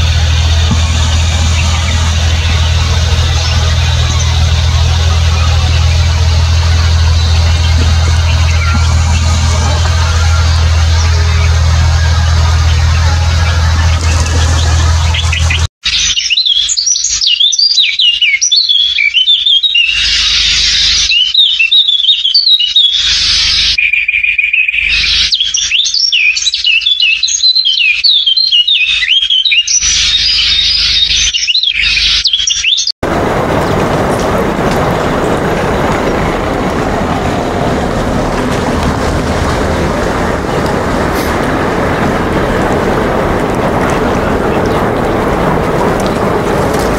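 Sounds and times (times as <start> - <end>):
steady rushing noise: 0.0 - 15.7, 33.0 - 46.9
birds chirping: 0.0 - 46.9.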